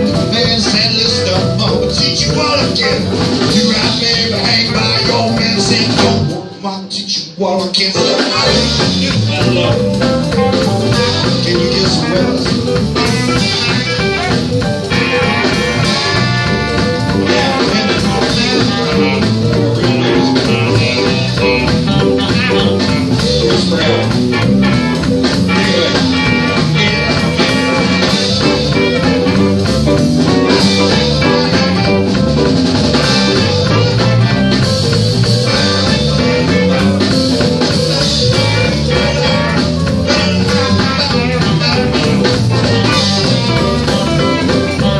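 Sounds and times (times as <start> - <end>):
blues band playing through a phone: 0.0 - 44.9.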